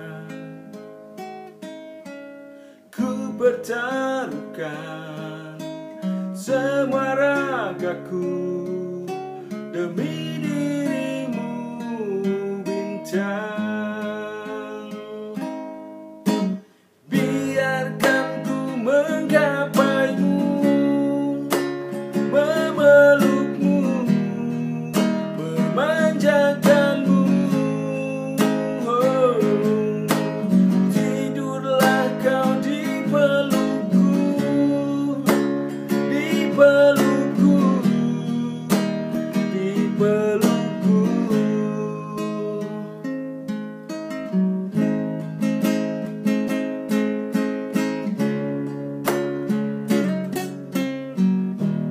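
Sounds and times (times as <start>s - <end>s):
man singing: 0.0s - 0.8s, 2.8s - 16.4s, 17.1s - 43.5s
acoustic guitar strumming: 0.0s - 51.9s.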